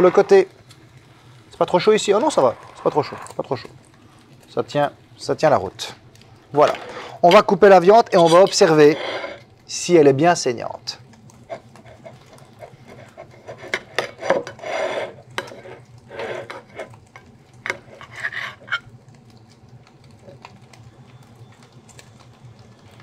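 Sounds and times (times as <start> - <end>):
cutlery scraping a plate: 8.2 - 9.5, 11.5 - 17.0, 17.7 - 18.9.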